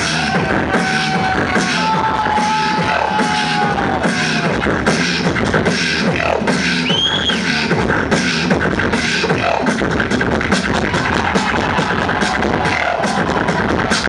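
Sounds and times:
beatboxing into a microphone: 0:00.0 - 0:14.0
short high whistle-like tone: 0:06.8 - 0:07.4.

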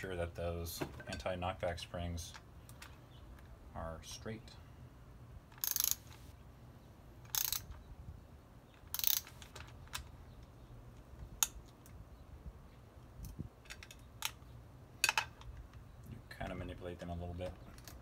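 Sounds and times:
socket ratchet clicking: 0:05.5 - 0:06.2, 0:07.3 - 0:07.8, 0:08.8 - 0:10.0.

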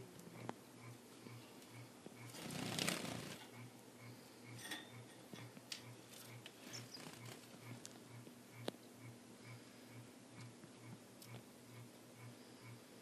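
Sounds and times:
finches chirping: 0:06.1 - 0:09.1.

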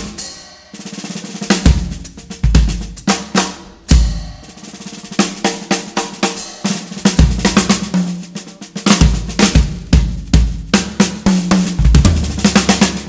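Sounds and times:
drum kit music: 0:00.0 - 0:13.0.

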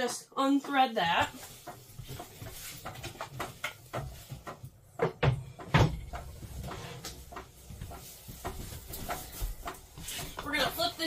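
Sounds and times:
loud thumps: 0:05.0 - 0:06.2.

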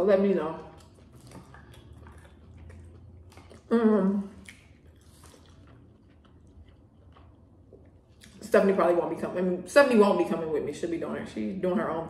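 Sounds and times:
wet squishing of hands in food: 0:00.0 - 0:09.1
chewing: 0:00.2 - 0:08.4.

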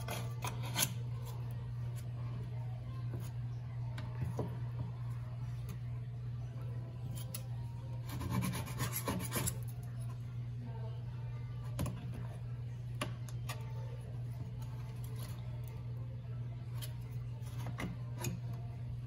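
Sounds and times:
steady low hum: 0:00.0 - 0:19.0
scraper blade rasping on steel: 0:08.0 - 0:09.7.

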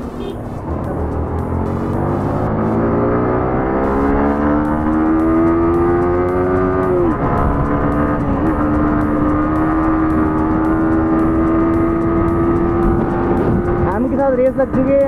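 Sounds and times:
motorcycle engine cruising: 0:00.0 - 0:15.0
wind rush: 0:12.9 - 0:13.9.

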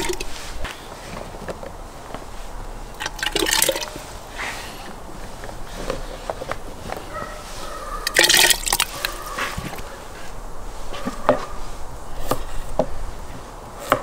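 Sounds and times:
potatoes splashing into water: 0:03.0 - 0:04.0, 0:08.0 - 0:09.2.

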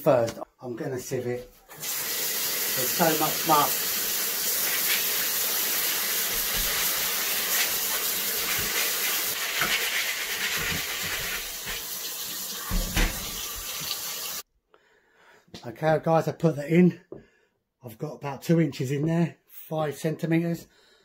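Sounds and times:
tap water running through sieve: 0:01.7 - 0:14.4.

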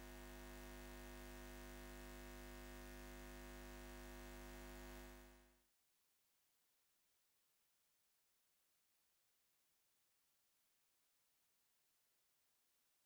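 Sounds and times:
faint electrical hum: 0:00.0 - 0:05.6.

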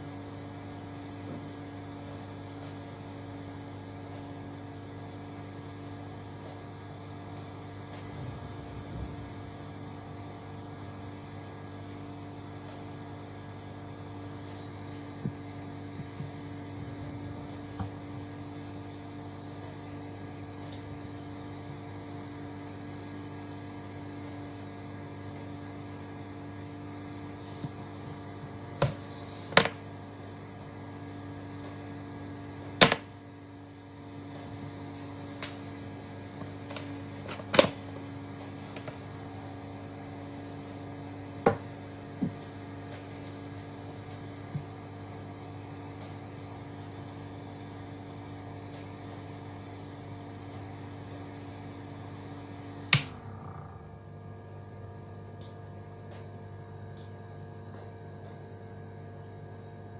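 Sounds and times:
electrical mains hum: 0:00.0 - 0:59.9.

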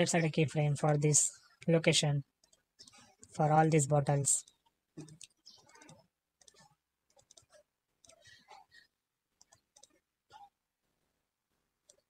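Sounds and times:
mouse and keyboard clicks: 0:02.4 - 0:03.4, 0:04.4 - 0:08.8, 0:09.4 - 0:10.5.

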